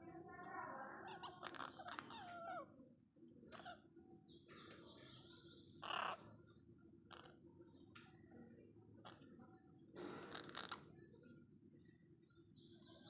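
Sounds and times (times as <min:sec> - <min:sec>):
parakeets chattering: 0:00.1 - 0:07.9, 0:08.9 - 0:11.1.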